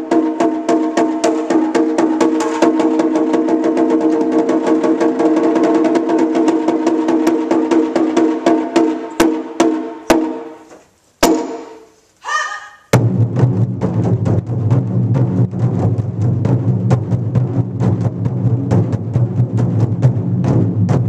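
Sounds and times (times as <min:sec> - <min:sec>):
deep barrel drum beats: 0:00.0 - 0:10.5, 0:12.9 - 0:21.0
high-pitched drum strikes: 0:00.0 - 0:10.5, 0:11.2 - 0:11.9, 0:12.9 - 0:21.0
person shouting: 0:12.2 - 0:12.9.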